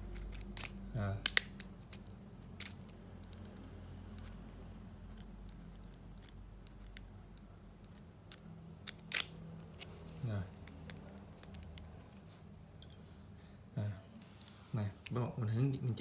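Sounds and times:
metal parts clicking: 0.0s - 4.4s
steady low hum: 0.0s - 16.0s.

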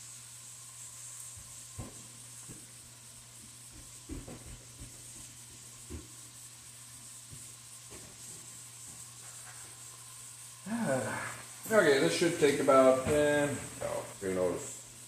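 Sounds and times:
meat sizzling in a frying pan: 0.0s - 15.0s.

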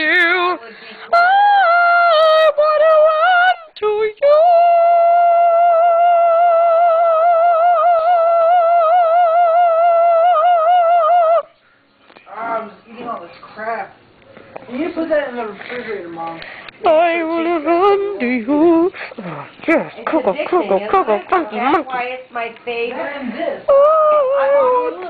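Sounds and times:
woman singing loudly with vibrato: 0.0s - 11.5s.

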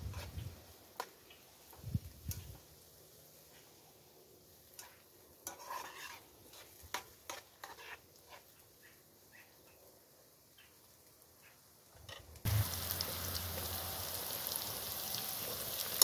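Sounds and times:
faint frying sizzle: 0.0s - 16.0s
spoon scraping a pan: 0.1s - 0.4s, 4.7s - 8.6s.

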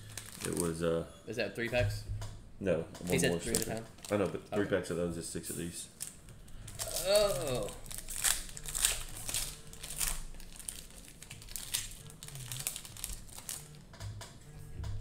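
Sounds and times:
cellophane wrappers crinkling: 0.0s - 0.9s, 3.1s - 4.7s, 5.6s - 13.8s.

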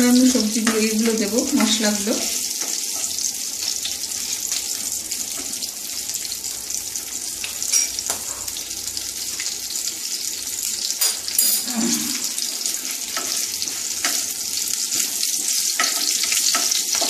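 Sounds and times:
spices sizzling in hot oil: 0.0s - 17.0s.

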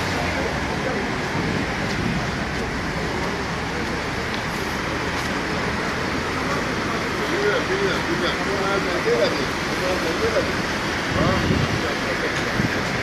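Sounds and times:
street traffic din: 0.0s - 13.0s.

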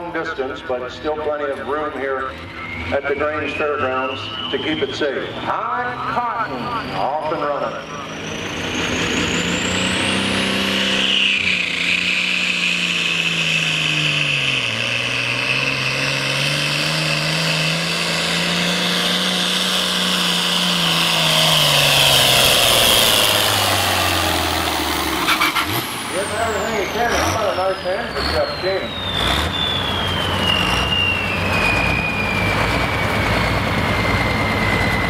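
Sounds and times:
high whine: 0.0s - 11.8s, 20.8s - 35.0s
diesel engine running hard: 0.0s - 35.0s.

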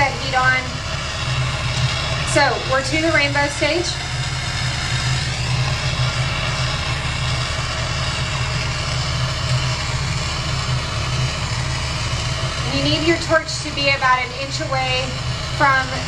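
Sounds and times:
gas torch flame rushing: 0.0s - 16.0s.

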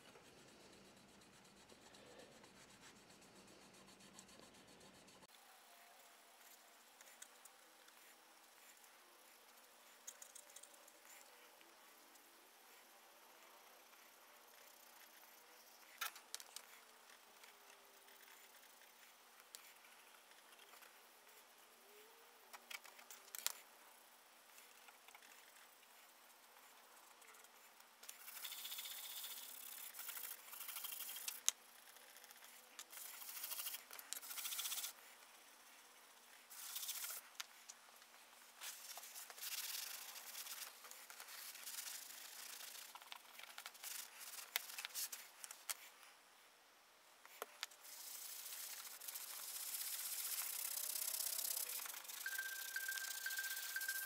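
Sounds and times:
scratchy rubbing on brass: 47.8s - 54.0s.

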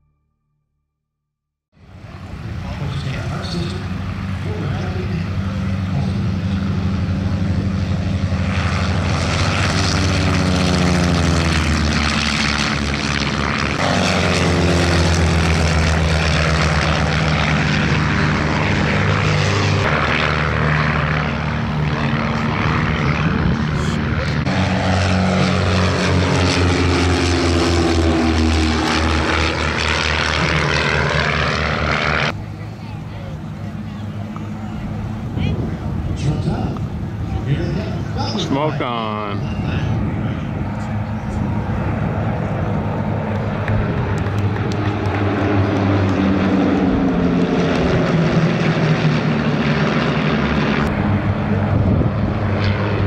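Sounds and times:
propeller planes flying past: 1.8s - 53.0s.

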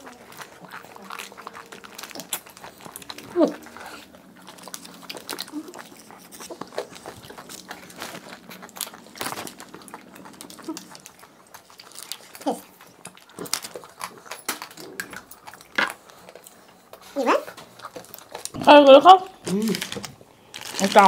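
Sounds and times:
wafer cone crunching: 6.4s - 10.8s.

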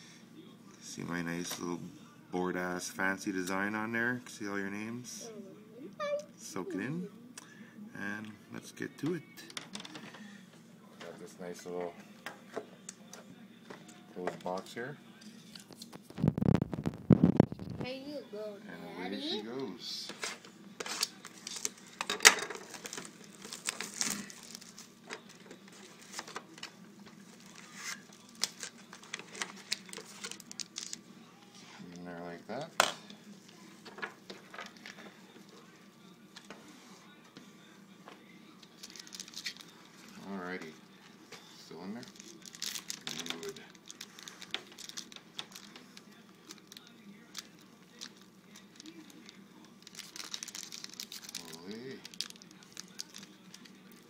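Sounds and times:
plastic shrink-wrap crinkling: 15.8s - 17.8s, 20.8s - 31.0s, 38.7s - 40.1s, 42.0s - 54.0s.

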